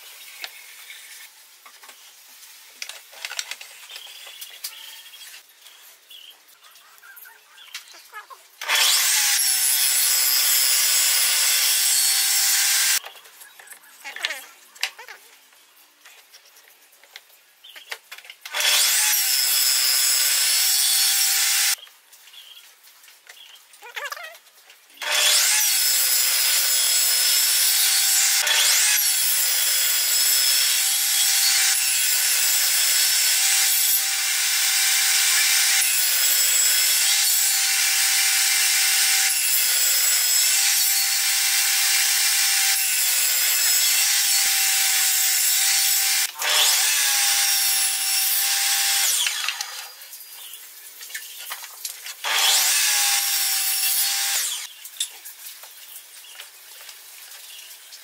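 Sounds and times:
table saw cutting wood: 8.6 - 13.0, 18.5 - 21.8, 25.0 - 50.0, 52.2 - 54.7.

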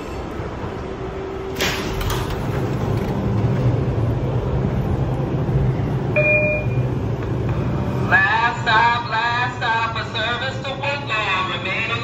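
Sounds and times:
train equipment low hum: 0.0 - 12.0
brief tone: 5.7 - 7.1.

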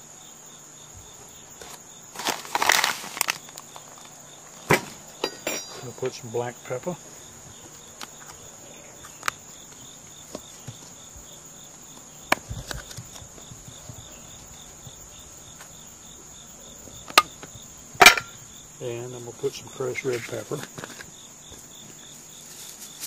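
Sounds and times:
insects chirping: 0.0 - 23.0
clicks and knocks of a tin: 18.0 - 18.4.

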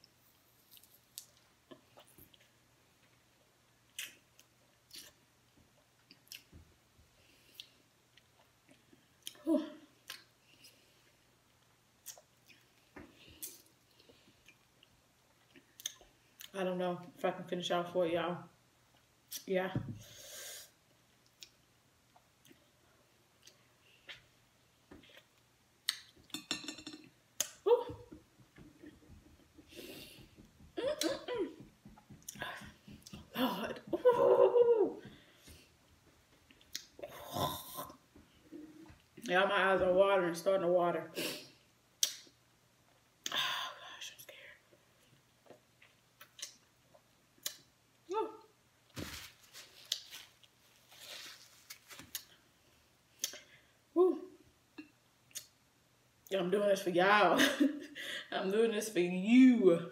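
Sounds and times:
wet mouth smacks and sucking: 42.0 - 42.3.

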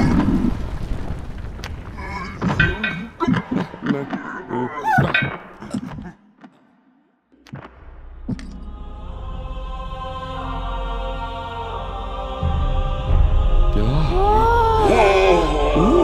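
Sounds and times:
vocal grunts and groans: 2.0 - 6.4, 13.7 - 16.0.

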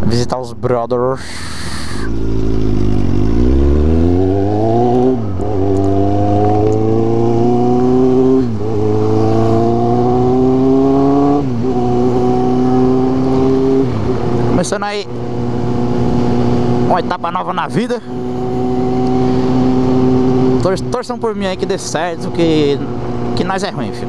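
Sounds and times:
motorcycle engine accelerating: 2.1 - 24.0.

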